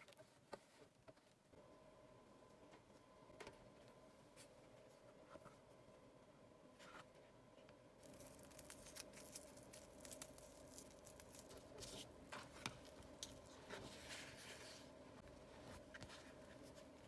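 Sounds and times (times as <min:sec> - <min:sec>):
cling film crinkling and clicks: 0:08.0 - 0:13.8.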